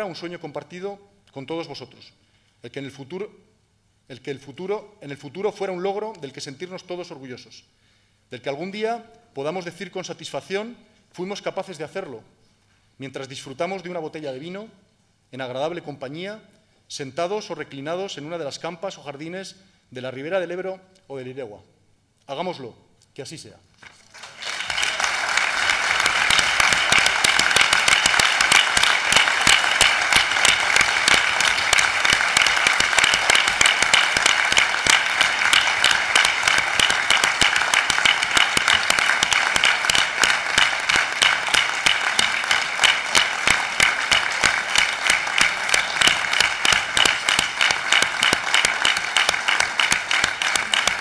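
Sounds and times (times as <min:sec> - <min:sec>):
crowd applauding: 0:24.0 - 0:51.0.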